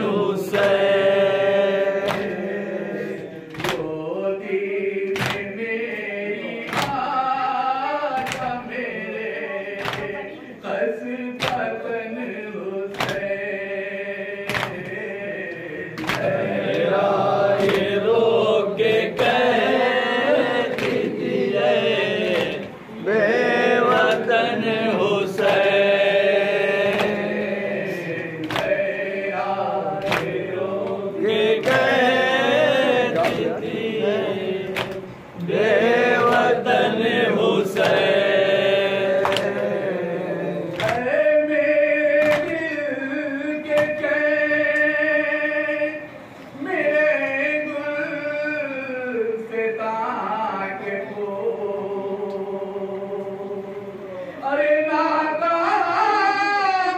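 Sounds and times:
group chanting a lament: 0.0 - 56.9
person reciting into a microphone: 0.0 - 56.9
hands slapping on chests: 2.0 - 2.5, 3.5 - 4.0, 5.1 - 5.5, 6.7 - 7.0, 8.1 - 8.6, 9.8 - 10.2, 11.4 - 11.7, 12.9 - 13.4, 14.5 - 15.0, 16.0 - 16.9, 26.9 - 27.4, 28.4 - 28.9, 30.0 - 31.0, 33.1 - 33.7, 34.7 - 35.0, 37.8 - 38.2, 39.2 - 39.7, 40.7 - 41.1, 42.2 - 42.7.

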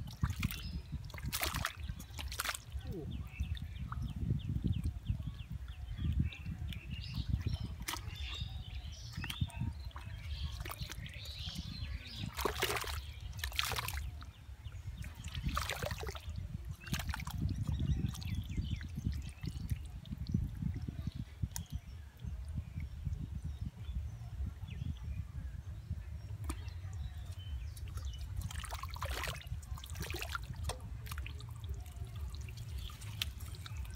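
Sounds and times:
hands sloshing through water: 0.0 - 2.8, 6.6 - 21.7, 26.4 - 33.9
sharp splashes: 0.0 - 2.8, 9.1 - 14.2, 15.0 - 17.4, 27.7 - 33.9.

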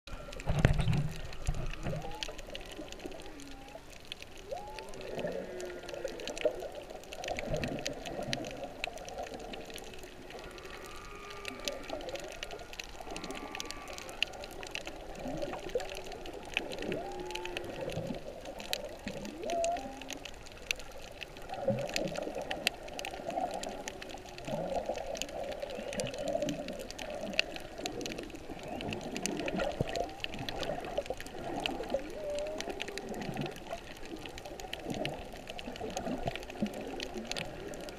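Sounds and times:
humpback whale song: 0.1 - 6.6, 9.9 - 20.4, 28.3 - 31.0, 31.7 - 33.7
crackle of clicks: 0.1 - 37.9
water splashing: 0.1 - 37.9.

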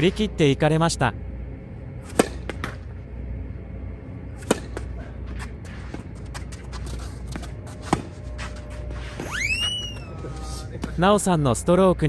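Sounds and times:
racket hitting tennis ball: 2.1 - 2.8, 4.4 - 4.9.

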